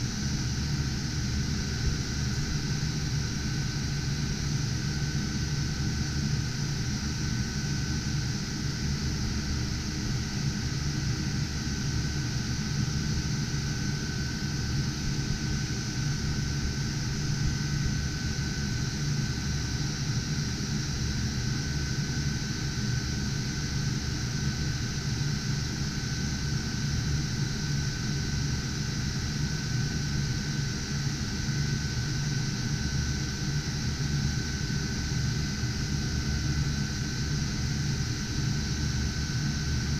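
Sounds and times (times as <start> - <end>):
cooling fans whirring: 0.0 - 39.9.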